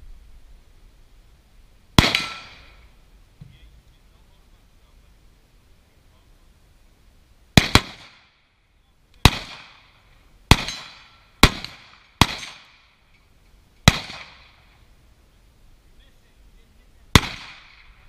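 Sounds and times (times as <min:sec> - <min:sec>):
rifle shots echoing: 0:02.0 - 0:02.9, 0:07.6 - 0:08.4, 0:09.2 - 0:13.0, 0:13.8 - 0:14.8, 0:17.1 - 0:18.0.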